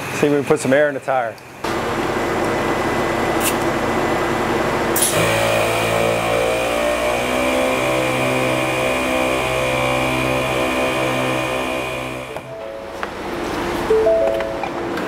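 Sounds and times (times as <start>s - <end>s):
air compressor running: 1.6s - 13.9s
background music: 10.5s - 13.1s, 13.9s - 14.8s.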